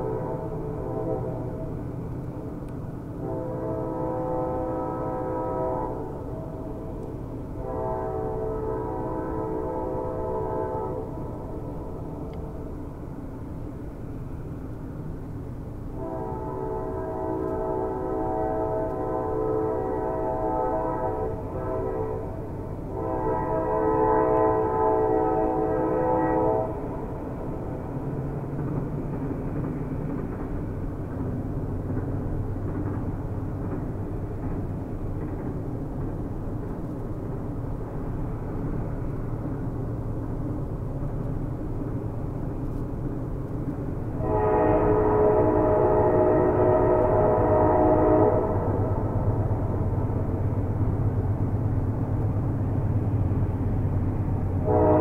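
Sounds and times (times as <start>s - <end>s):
train horn blasts: 0.0s - 1.8s, 3.2s - 12.7s, 15.9s - 27.9s, 44.2s - 50.2s, 54.6s - 55.0s
train rumbling on rails: 0.0s - 55.0s.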